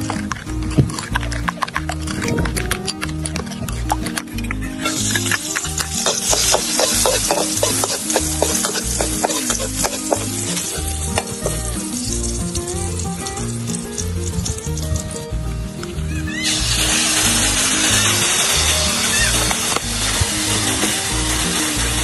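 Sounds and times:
utensil clicking against pan: 0:00.0 - 0:15.1
food sizzling in a pan: 0:04.8 - 0:14.8, 0:16.3 - 0:22.0.

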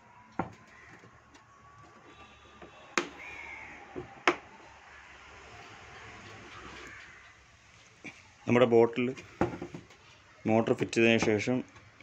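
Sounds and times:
plastic bottle knocking on workbench: 0:09.4 - 0:09.9.

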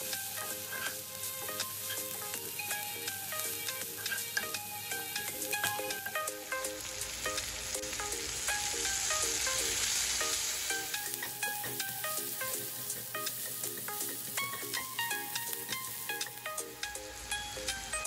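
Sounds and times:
background music with plucked notes: 0:00.0 - 0:18.0
vegetables sizzling in frying pan: 0:00.0 - 0:18.0.

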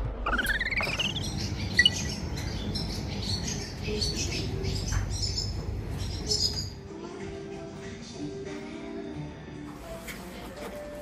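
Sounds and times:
steady low rumble: 0:00.0 - 0:06.8
small birds chirping: 0:00.3 - 0:06.8.

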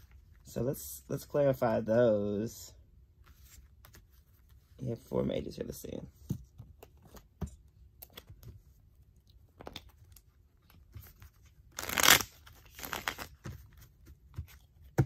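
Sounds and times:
papery rustle of cards: 0:09.6 - 0:14.8.

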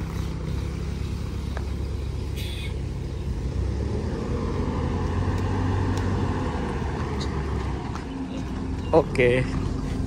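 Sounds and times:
bus diesel engine rumble: 0:00.0 - 0:10.0
brief hiss: 0:02.3 - 0:02.8.

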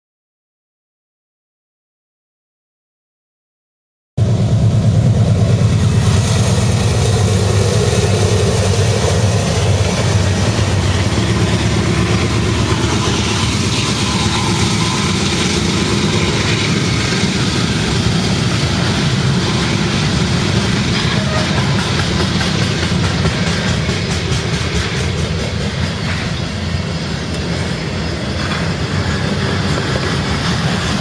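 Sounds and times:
diesel locomotive engines: 0:04.2 - 0:31.0
train wheels rolling on rails: 0:04.2 - 0:31.0.

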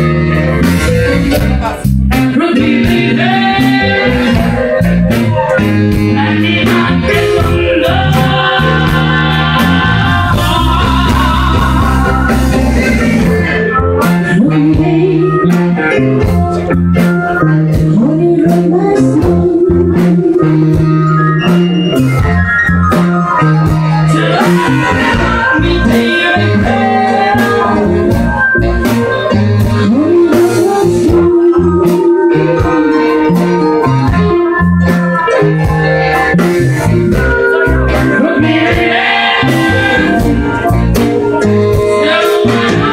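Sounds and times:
person singing: 0:00.0 - 0:22.1, 0:23.3 - 0:42.9
bass line: 0:00.0 - 0:42.9
drums keeping a steady beat: 0:00.0 - 0:42.9
electric guitar: 0:00.0 - 0:42.9.

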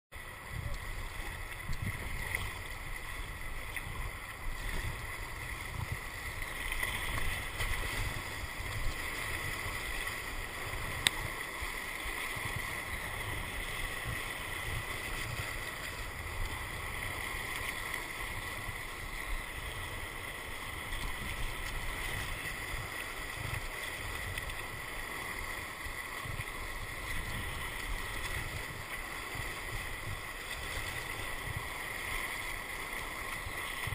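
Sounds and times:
whitewater rushing and splashing: 0:00.2 - 0:33.9
wind buffeting microphone: 0:00.4 - 0:11.4.

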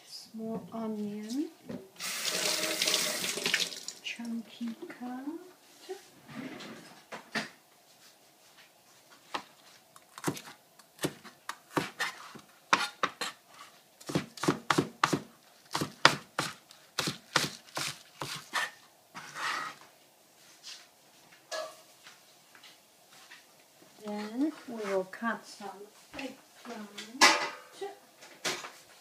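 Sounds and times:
cleaver chopping on cutting board: 0:14.0 - 0:18.4.

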